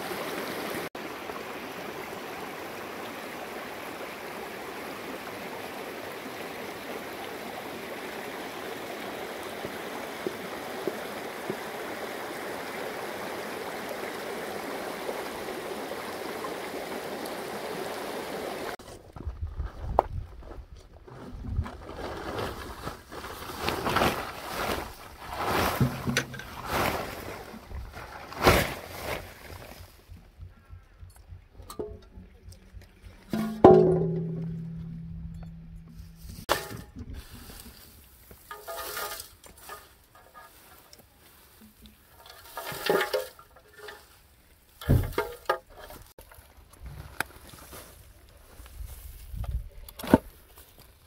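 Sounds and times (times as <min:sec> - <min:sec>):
plastic tarpaulin rustling and crackling: 0:18.8 - 0:30.6, 0:44.8 - 0:51.0
dry straw rustling and crackling: 0:21.7 - 0:31.0, 0:36.1 - 0:44.2
dull thump: 0:29.6 - 0:37.2, 0:44.8 - 0:45.4.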